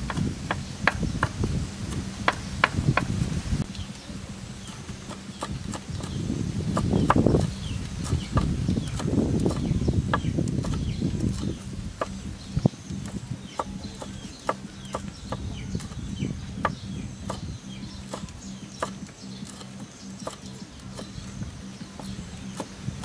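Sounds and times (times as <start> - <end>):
cleaver chopping on wooden board: 0.1 - 3.2, 6.8 - 12.2, 13.0 - 22.8.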